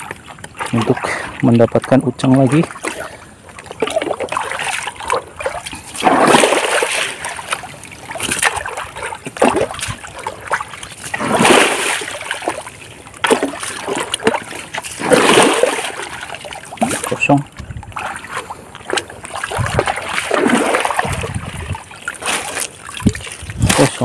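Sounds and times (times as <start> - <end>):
water splashing in a stream: 0.0 - 24.0.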